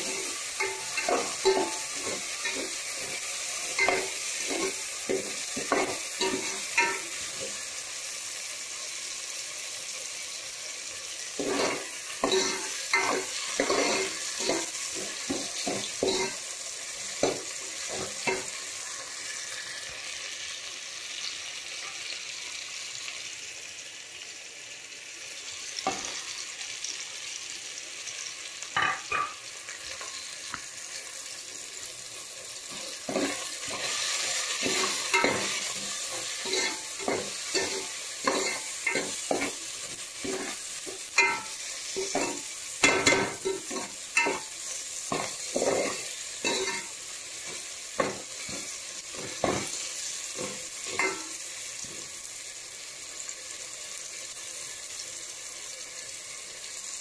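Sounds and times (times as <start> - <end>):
spatula scraping a pan: 0.0 - 7.6, 11.4 - 16.5, 32.8 - 51.4
vegetables sizzling in oil: 0.0 - 57.0.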